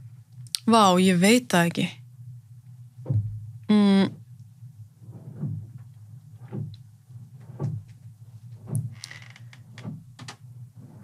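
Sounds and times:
steady low hum: 0.0 - 11.0
soft low thuds: 2.2 - 11.0.

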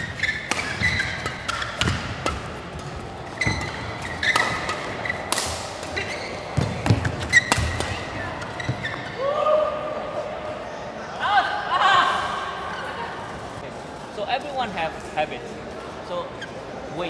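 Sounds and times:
rackets hitting shuttlecock: 0.0 - 9.0
shoes squeaking on court: 0.0 - 9.2.

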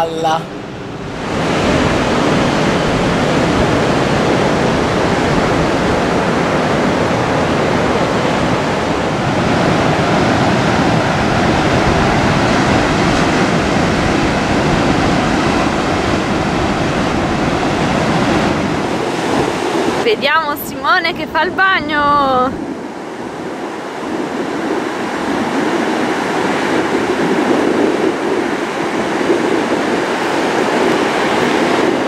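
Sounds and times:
ocean surf breaking: 0.0 - 32.0.

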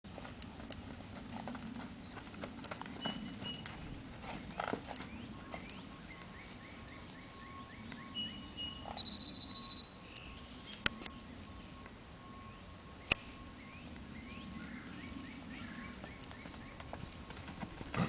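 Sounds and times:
hooves on dirt: 0.1 - 8.1, 15.5 - 18.0
low outdoor rumble: 0.1 - 18.0
songbirds chirping: 0.2 - 18.0.

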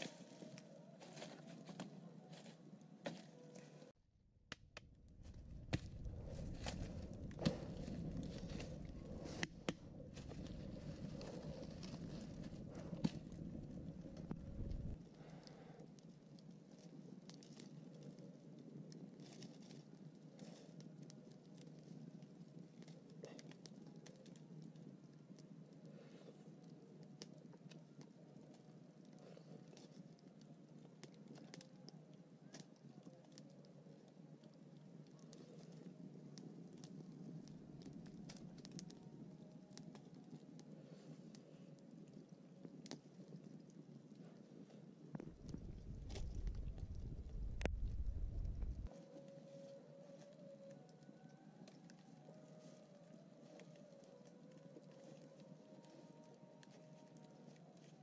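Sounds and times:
campfire crackling and popping: 4.5 - 58.0
low rush of flame: 4.7 - 15.4, 45.1 - 48.9.

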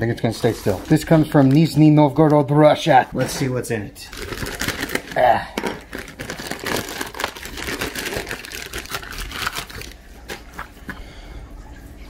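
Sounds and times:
plastic mailer crinkling and tearing: 4.1 - 10.7.

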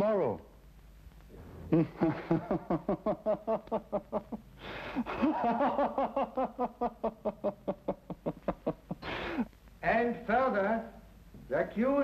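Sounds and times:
man laughing heartily: 1.7 - 9.5.

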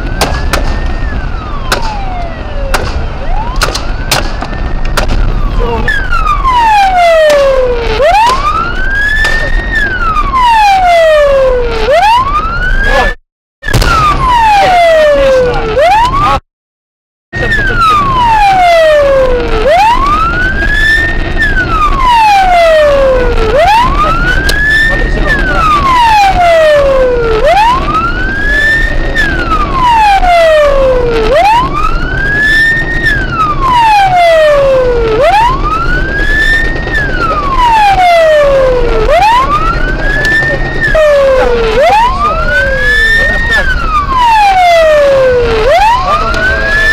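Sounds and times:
engine and road noise: 0.0 - 16.4, 17.3 - 46.9
police siren wailing: 0.0 - 16.4, 17.4 - 46.9.

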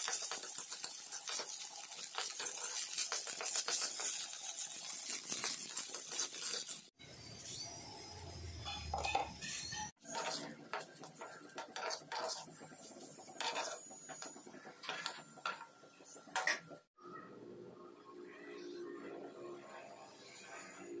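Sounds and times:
metal spatula scraping a wok: 0.0 - 6.9, 8.6 - 16.8.

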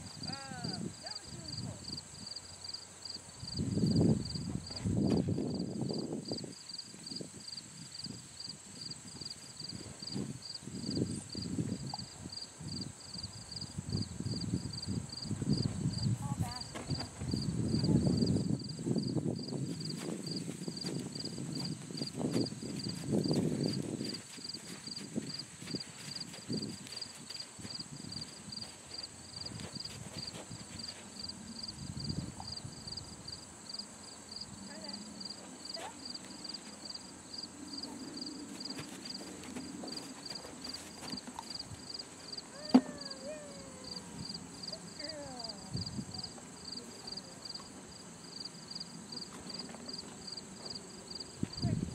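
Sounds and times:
high insect drone: 0.0 - 51.9
insects chirping: 0.0 - 51.9
horse hooves walking on sand: 14.6 - 33.5, 34.7 - 51.9
soft low scuffs and thumps: 15.6 - 17.9, 19.6 - 31.2.

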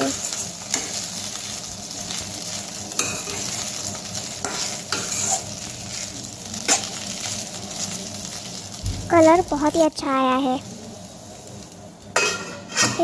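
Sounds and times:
frying sizzle: 0.0 - 13.0
metal spatula scraping a pan: 4.4 - 5.5, 12.2 - 13.0.

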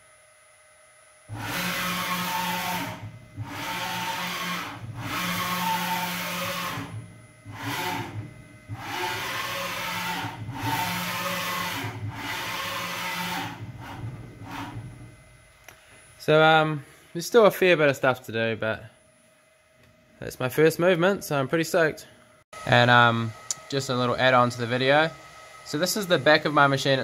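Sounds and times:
servo motor whine: 1.2 - 16.1, 22.6 - 27.0.

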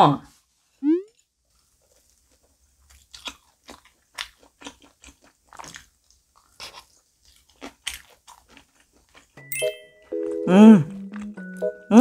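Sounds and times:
crisp crunching while chewing: 1.5 - 9.4.

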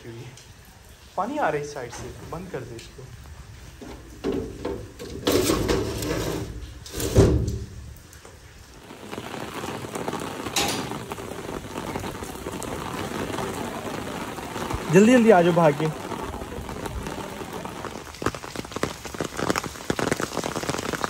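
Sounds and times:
heavy rain: 0.0 - 21.0
metal window rattling shut: 3.9 - 7.8.

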